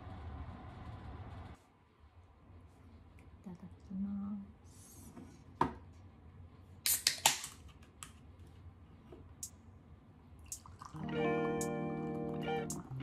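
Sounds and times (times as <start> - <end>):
can opening with fizzing hiss: 6.9 - 7.6
guitar music: 11.0 - 13.0.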